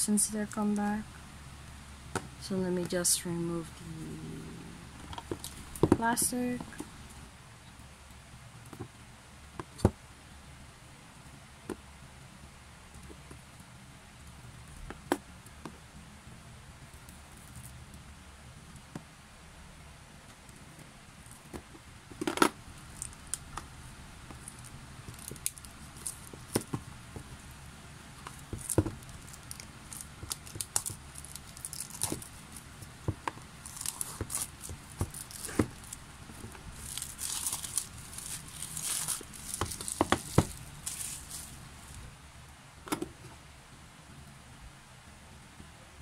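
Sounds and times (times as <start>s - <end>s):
plastic shrink wrap crinkling: 5.0s - 7.0s, 22.6s - 42.1s.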